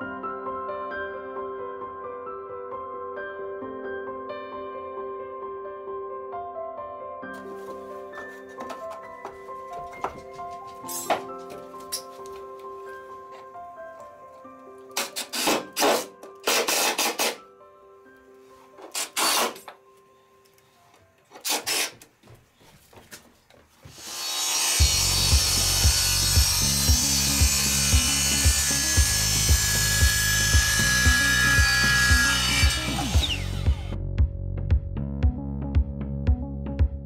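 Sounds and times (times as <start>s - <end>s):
faint music: 7.4s - 23.9s
cordless drill driving screws: 15.0s - 17.4s, 18.9s - 19.7s, 21.3s - 22.1s, 23.9s - 34.0s
music with steady beat: 24.8s - 37.0s.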